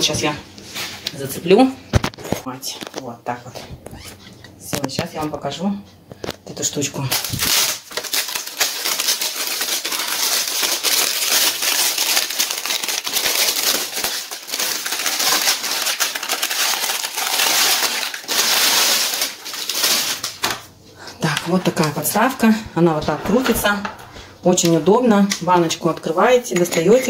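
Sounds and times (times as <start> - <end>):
plastic film crinkling: 7.0 - 20.7.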